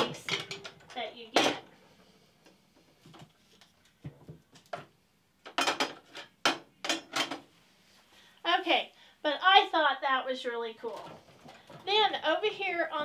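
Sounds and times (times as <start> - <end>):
small items knocking on metal: 0.0 - 1.6.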